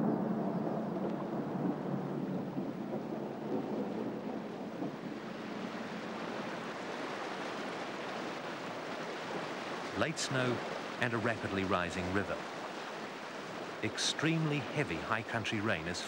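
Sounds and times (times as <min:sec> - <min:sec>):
low rumble: 0:00.0 - 0:06.3
rain: 0:00.0 - 0:16.0
wind: 0:00.0 - 0:16.0
rushing river in flood: 0:02.0 - 0:16.0.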